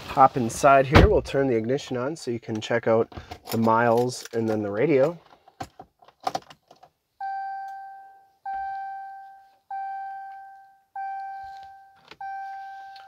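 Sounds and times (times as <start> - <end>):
seatbelt reminder chime: 7.2 - 13.0.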